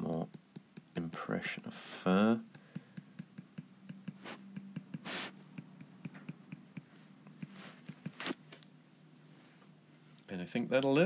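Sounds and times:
stylus tapping on drawing tablet: 0.2 - 1.0, 2.5 - 8.2
stylus scratchy strokes: 4.1 - 6.2, 6.9 - 8.5.

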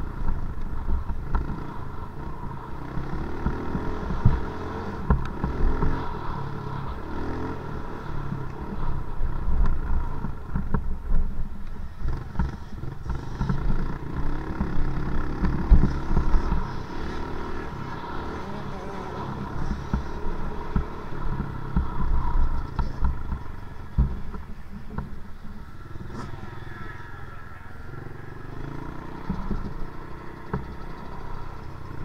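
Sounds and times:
dirt bike engine revving: 12.0 - 24.4
sharp knocks from bumps: 30.5 - 30.8.

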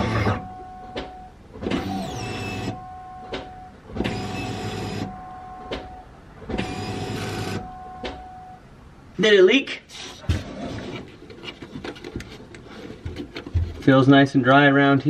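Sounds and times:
electric fuel pumps priming: 0.0 - 8.2.

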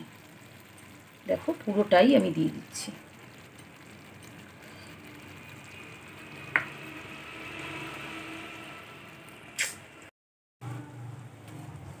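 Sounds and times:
prawns sizzling in a frying pan: 0.0 - 9.8
sharp click: 9.6 - 9.8.

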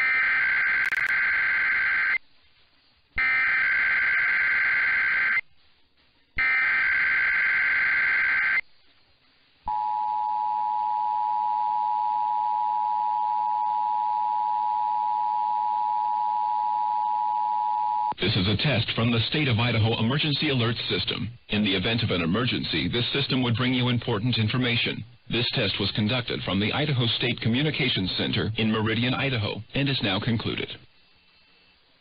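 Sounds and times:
data tone bursts over radio: 0.0 - 2.2, 3.2 - 5.5, 6.4 - 8.7.

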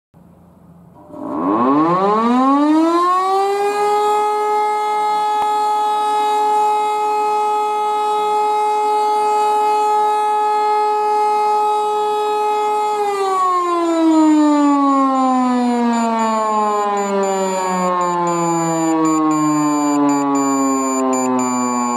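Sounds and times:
electromechanical siren winding up: 1.0 - 2.2, 15.6 - 21.9.

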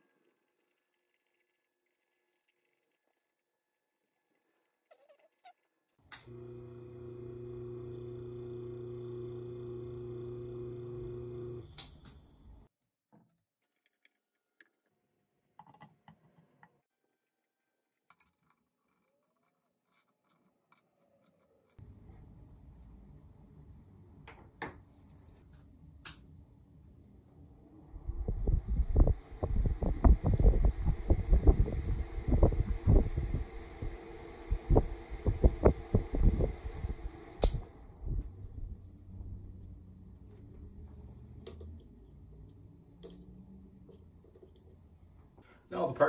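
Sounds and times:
electric fan motor humming: 6.2 - 12.7, 27.8 - 39.5
low steady rumble: 26.8 - 44.0.

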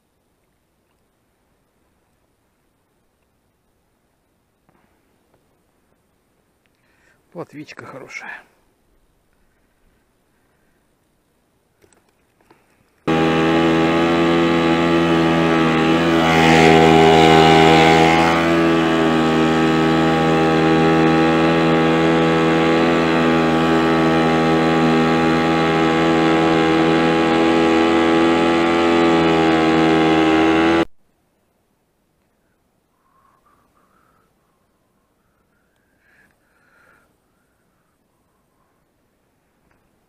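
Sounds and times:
outboard motor running: 13.0 - 30.9.

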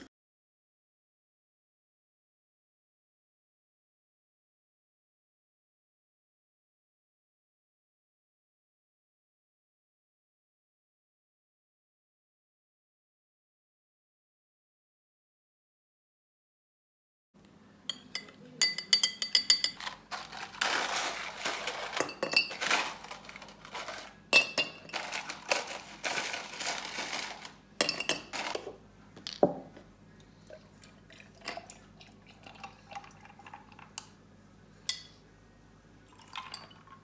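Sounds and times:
dishes and glassware clinking: 17.9 - 20.0, 20.9 - 26.7, 27.8 - 28.7
running or pouring liquid: 30.4 - 34.0, 36.1 - 37.0.

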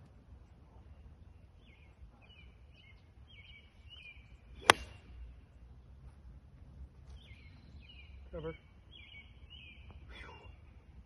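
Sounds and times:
birds chirping faintly: 0.4 - 11.0
golf ball struck with sharp crack: 4.6 - 5.2.

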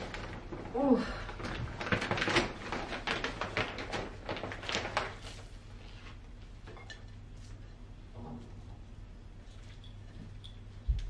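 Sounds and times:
plastic bag rustling and crinkling: 0.0 - 6.6.

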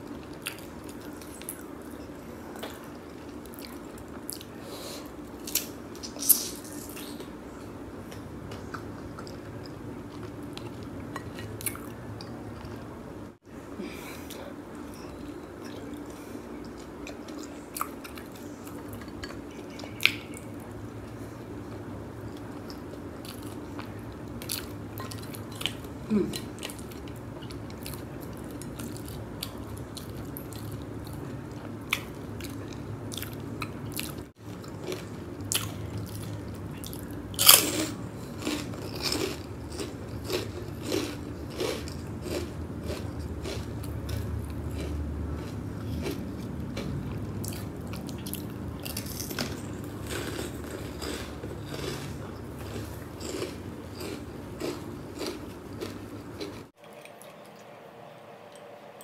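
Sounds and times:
wet chewing and crunching: 22.3 - 57.6.

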